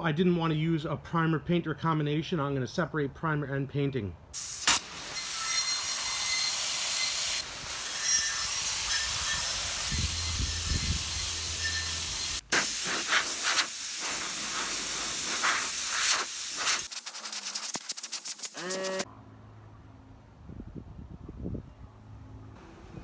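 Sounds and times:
high-pressure water spray hissing: 4.4 - 19.1.

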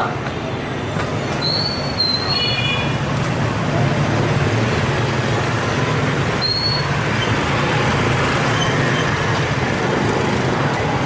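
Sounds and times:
street traffic engine hum: 0.0 - 11.0
brief high squeak: 1.4 - 2.8, 6.4 - 7.4.

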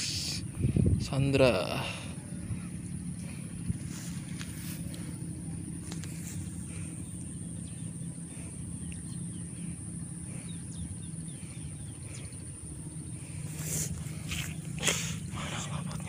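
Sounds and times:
steady low hum: 0.0 - 16.0
bird chirping: 5.0 - 15.9
insect buzzing: 5.8 - 16.0.

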